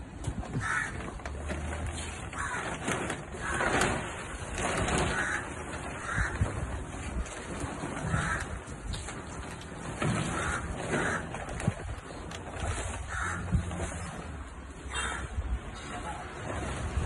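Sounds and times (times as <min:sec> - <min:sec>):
plastic tarp rustling: 0:00.0 - 0:17.0
crows cawing: 0:00.6 - 0:01.2, 0:02.3 - 0:02.8, 0:05.1 - 0:06.8, 0:08.0 - 0:08.8, 0:10.3 - 0:11.4, 0:13.0 - 0:13.7, 0:14.9 - 0:15.4.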